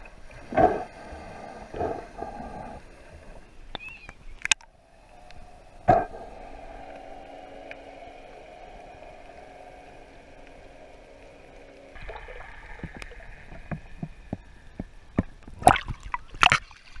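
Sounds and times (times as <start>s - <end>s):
underwater steady hum: 0.0s - 17.0s
sharp clicks underwater: 3.7s - 6.2s, 12.0s - 17.0s
bubbling splashes: 11.8s - 14.4s, 15.5s - 17.0s.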